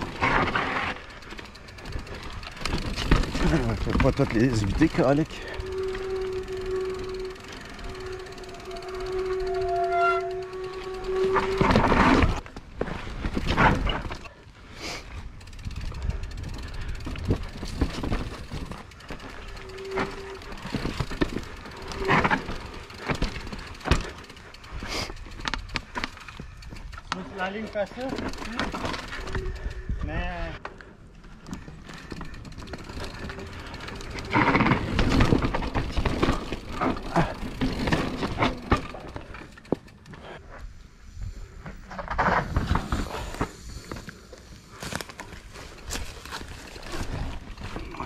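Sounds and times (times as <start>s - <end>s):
bike knocks and rattles: 0.0s - 9.4s, 10.4s - 14.3s, 15.4s - 29.3s, 31.5s - 40.1s
tyres rumbling on rough trail: 0.0s - 48.0s.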